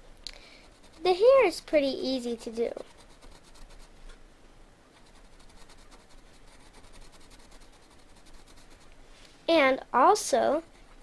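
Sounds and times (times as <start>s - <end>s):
pencil scratching on paper: 0.6s - 1.8s, 2.7s - 3.9s, 5.0s - 8.9s.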